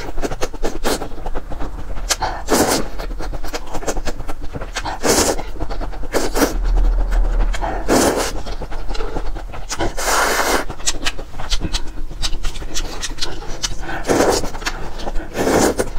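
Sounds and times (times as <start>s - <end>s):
wet chewing and lip-smacking: 10.8s - 15.9s.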